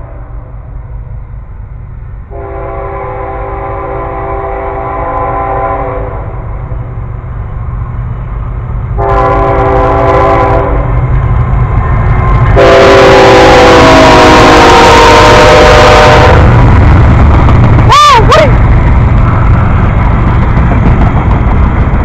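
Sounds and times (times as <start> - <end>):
locomotive engine rumble: 0.0 - 22.0
locomotive air horn blasts: 2.3 - 6.4, 9.0 - 11.0, 12.6 - 16.6.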